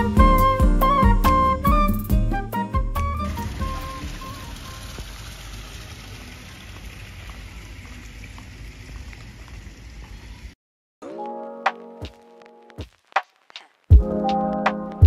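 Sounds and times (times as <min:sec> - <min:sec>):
music: 0:00.0 - 0:04.4, 0:11.0 - 0:13.3, 0:13.9 - 0:15.0.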